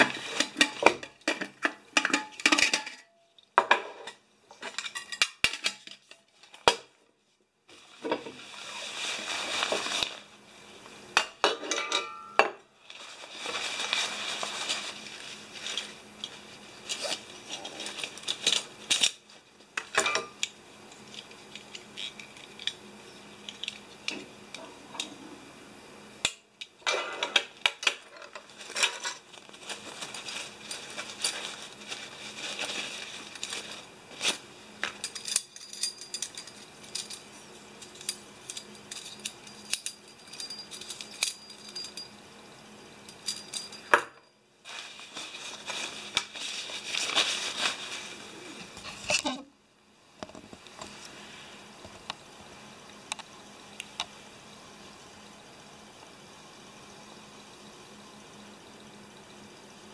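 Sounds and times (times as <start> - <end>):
metal cookware clinking: 0.0 - 6.2, 11.2 - 12.6, 19.9 - 20.5
stuff sacks rustling: 7.7 - 10.5, 12.8 - 19.4, 28.3 - 35.0, 44.6 - 49.0.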